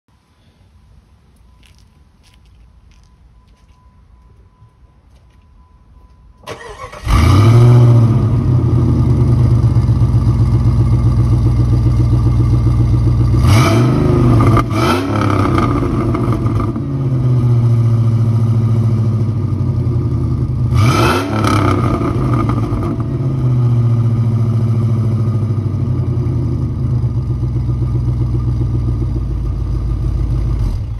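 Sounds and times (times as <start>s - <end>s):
engine revving in short blips: 6.4s - 8.4s
car engine starting and idling: 6.4s - 30.9s.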